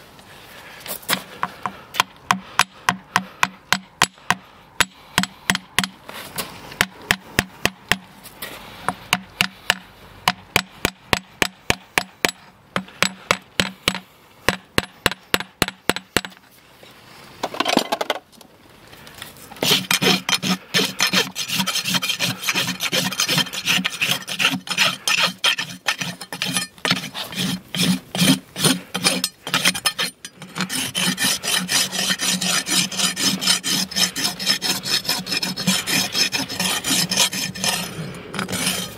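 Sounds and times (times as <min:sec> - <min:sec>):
rasp filing hoof: 0:19.6 - 0:38.9.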